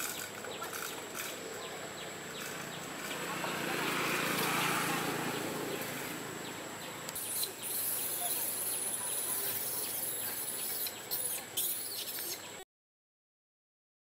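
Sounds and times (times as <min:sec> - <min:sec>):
outdoor background hiss: 0:00.0 - 0:12.6
insects shrilling: 0:07.2 - 0:12.6.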